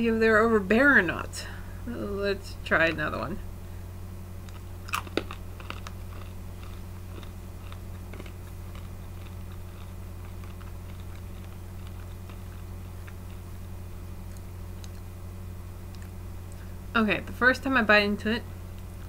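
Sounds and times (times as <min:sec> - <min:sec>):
steady low hum: 0:00.0 - 0:19.0
person chewing crunchy peanuts: 0:04.4 - 0:15.1.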